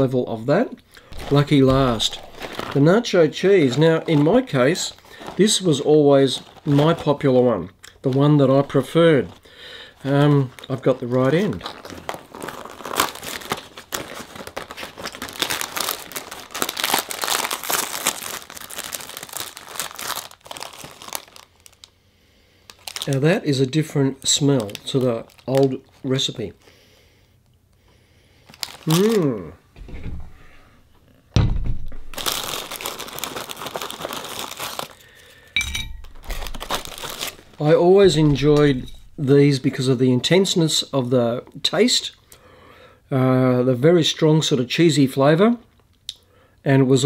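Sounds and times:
foil bag crumpled and torn: 1.1 - 7.4, 10.0 - 21.9, 22.7 - 26.4, 28.4 - 29.4, 32.0 - 39.9
low thump: 31.4 - 32.1.

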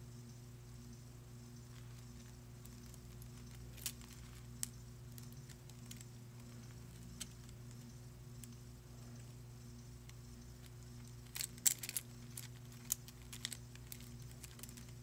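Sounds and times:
faint electrical hum: 0.0 - 15.0.

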